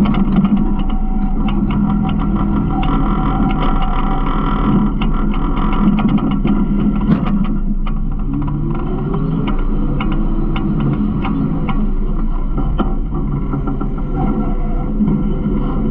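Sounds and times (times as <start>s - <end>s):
garbage truck engine and hydraulics: 0.0s - 15.9s.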